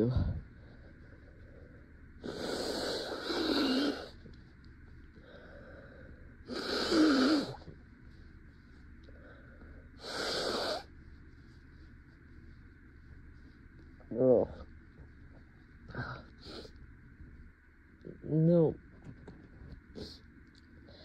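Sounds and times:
woman blowing her nose: 0:02.2 - 0:04.1, 0:06.5 - 0:07.6, 0:10.0 - 0:10.9.

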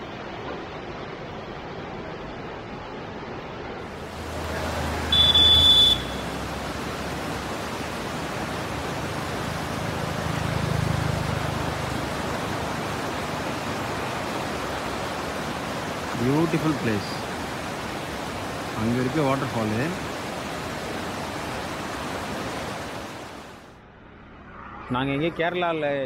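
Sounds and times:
river rushing over rapids: 0:00.0 - 0:23.7
loud high-pitched tone: 0:05.1 - 0:06.3.

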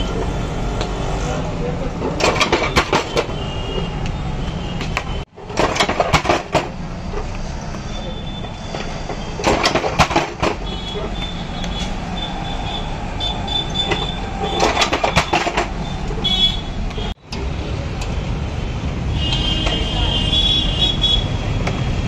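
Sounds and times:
traffic rumble: 0:00.0 - 0:22.0
clattering at a stall: 0:00.1 - 0:12.0, 0:13.6 - 0:16.4.

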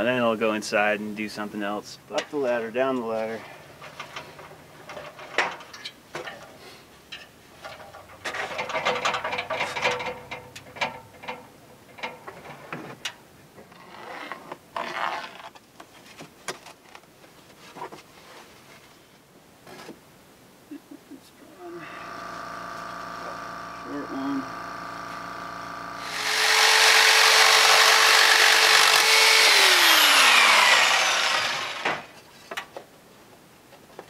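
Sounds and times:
clatter and rustling of shingles: 0:03.0 - 0:20.0, 0:31.8 - 0:33.0
knocks and clicks on a ladder: 0:07.2 - 0:13.2.

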